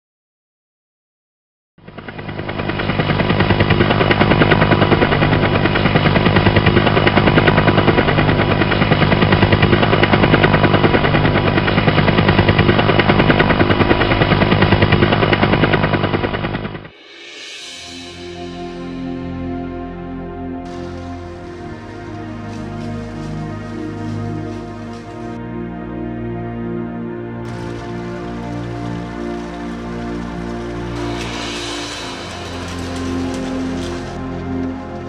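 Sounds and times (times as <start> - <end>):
tractor engine running: 1.8 - 16.9, 20.6 - 25.8, 27.3 - 35.0.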